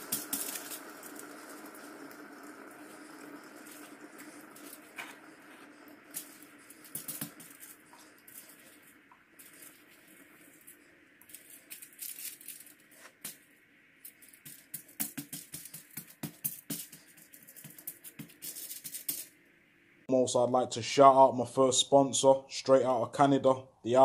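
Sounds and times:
aluminium foil crinkling: 0.0 - 1.8, 6.1 - 13.4, 14.0 - 19.3.

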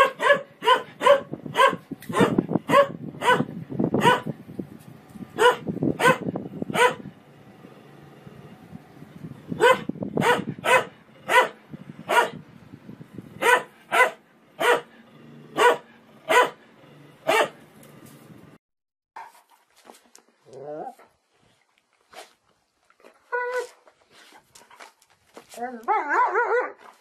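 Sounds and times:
dog barking: 0.0 - 4.3, 5.4 - 7.1, 9.6 - 12.4, 13.4 - 14.9, 15.5 - 16.6, 17.2 - 17.6, 25.9 - 26.8.

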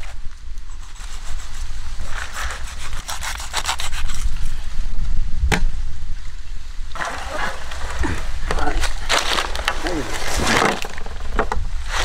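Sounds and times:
knife sawing through fish fin: 2.5 - 4.3.

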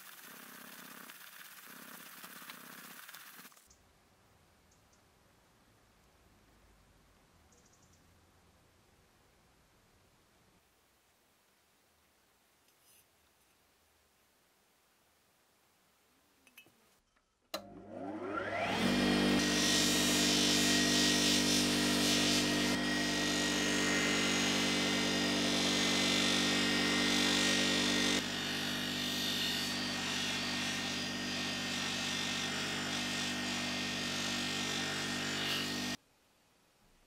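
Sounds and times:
bench polisher motor humming: 0.0 - 3.5, 17.6 - 36.0.

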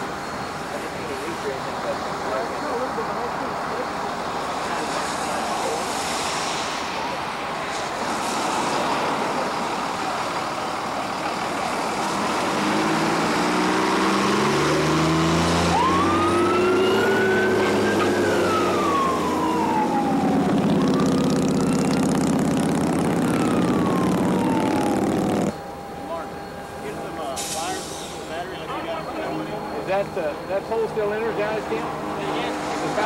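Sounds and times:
tyres hissing on wet road: 0.0 - 16.3, 27.2 - 28.4, 31.8 - 33.0
fire engine revving: 0.0 - 33.0
siren winding: 22.7 - 25.7.

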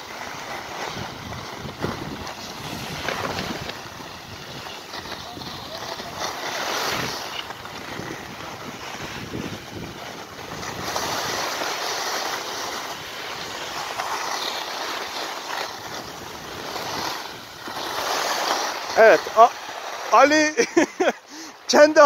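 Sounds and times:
skis scraping over snow: 0.0 - 22.0
wind rushing on microphone: 0.9 - 11.5.

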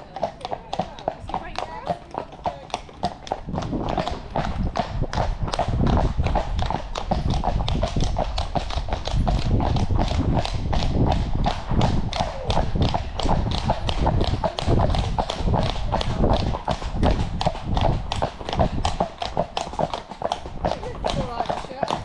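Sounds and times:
horse hooves on tarmac: 0.0 - 22.0
steady low rumble: 3.3 - 19.5.

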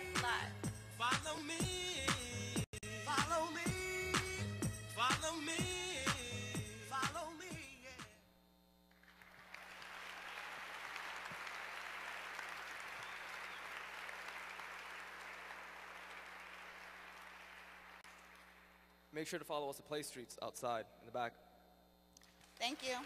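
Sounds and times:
song with chanting voice: 0.0 - 8.2
audience applauding: 8.9 - 18.8.

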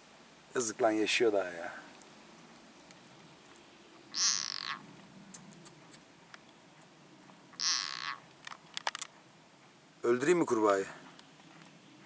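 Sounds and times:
frog distress calls: 4.1 - 4.9, 7.5 - 8.3.

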